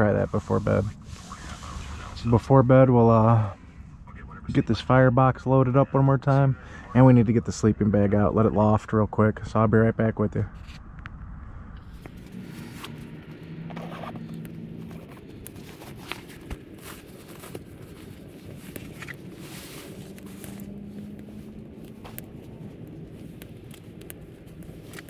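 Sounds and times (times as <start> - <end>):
rustling and scraping of gear: 11.8 - 25.0.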